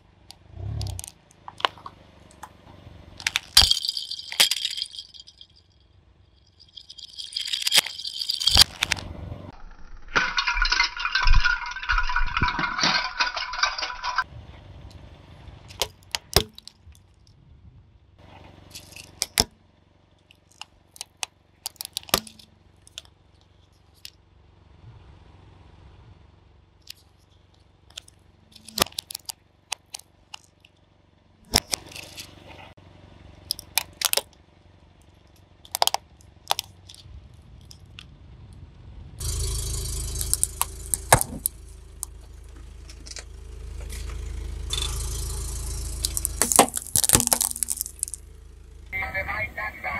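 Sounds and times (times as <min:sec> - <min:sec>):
low steady hum: 0:00.0 - 0:49.9
objects crunching under car tyre: 0:00.4 - 0:05.4, 0:06.6 - 0:09.6, 0:39.2 - 0:48.6.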